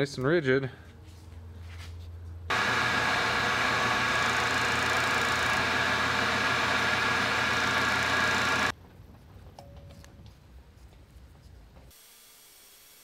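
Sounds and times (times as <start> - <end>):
milling machine cutting metal: 2.5 - 8.7.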